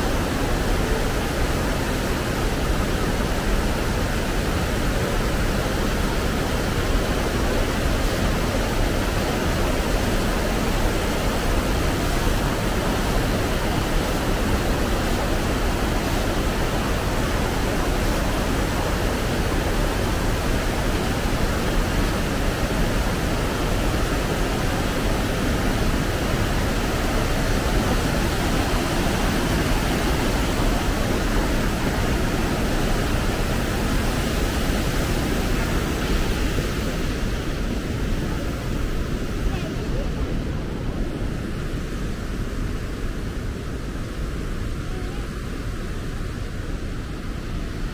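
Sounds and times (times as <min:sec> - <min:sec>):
waterfall rushing: 0:00.0 - 0:47.9.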